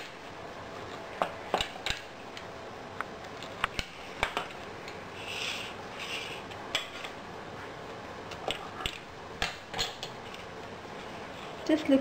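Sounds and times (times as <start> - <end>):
scraping rub: 5.1 - 6.5.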